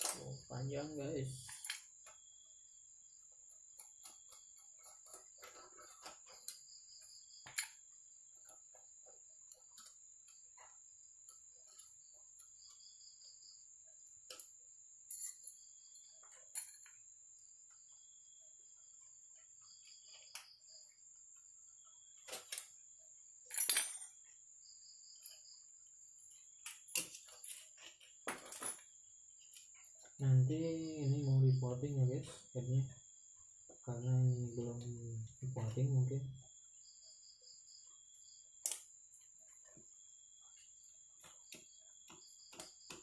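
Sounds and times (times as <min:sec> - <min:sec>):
metal parts clattering: 0:26.7 - 0:28.9.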